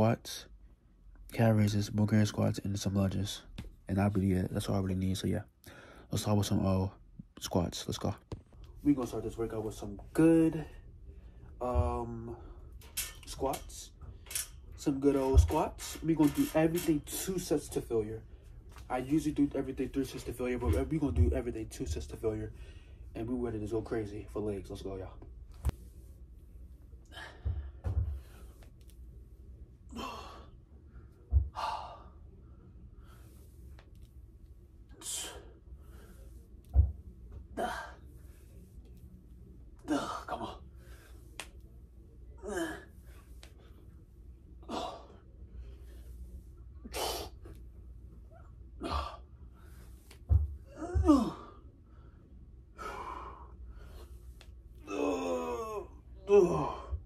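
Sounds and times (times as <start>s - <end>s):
man grunting: 42.4s - 42.9s, 50.7s - 51.6s, 54.8s - 57.0s.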